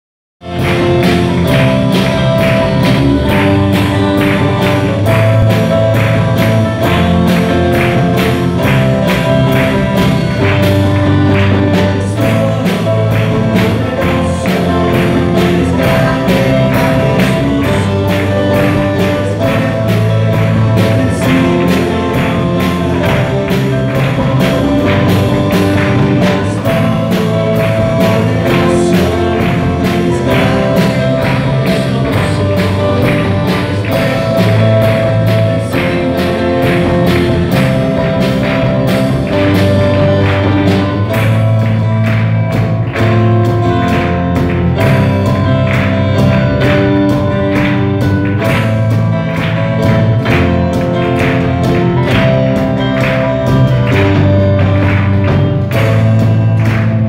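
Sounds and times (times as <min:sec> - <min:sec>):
bass guitar: 0:00.4 - 0:57.0
drum kit beat: 0:00.4 - 0:57.0
electric guitar chords: 0:00.4 - 0:57.0
worship band playing: 0:00.4 - 0:57.0.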